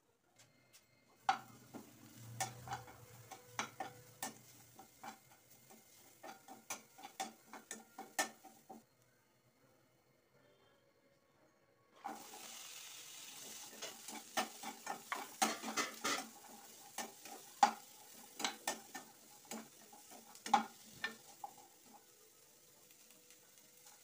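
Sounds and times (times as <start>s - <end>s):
vegetables sizzling in a pan: 1.2s - 8.8s, 12.0s - 24.0s
spatula scraping and knocking pan: 1.3s - 8.8s, 13.4s - 22.0s.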